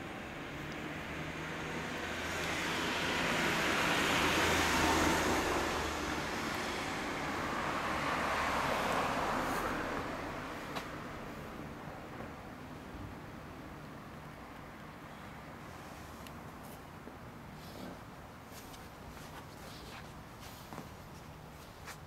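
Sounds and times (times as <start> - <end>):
vehicle passing: 0.2 - 11.6.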